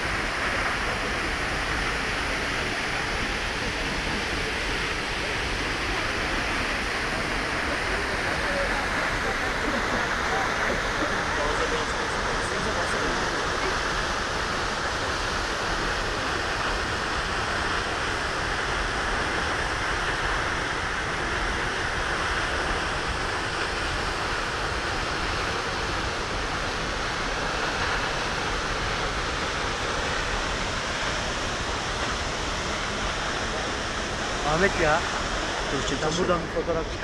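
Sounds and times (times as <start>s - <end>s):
waterfall rushing: 0.0s - 37.0s.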